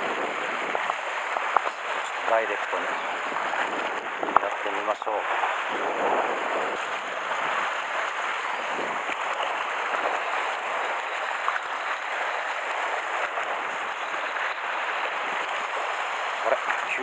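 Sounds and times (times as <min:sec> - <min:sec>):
sea washing against rocks: 0:00.0 - 0:17.0.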